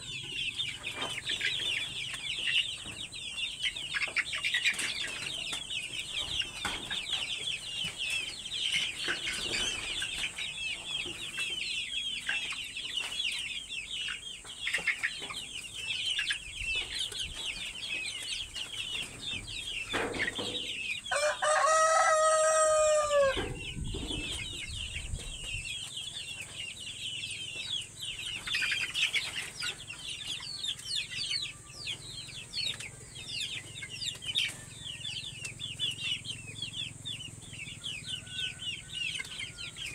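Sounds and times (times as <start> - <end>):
chicks peeping: 0.0 - 39.9
rooster crowing: 21.1 - 23.6, 37.9 - 39.9.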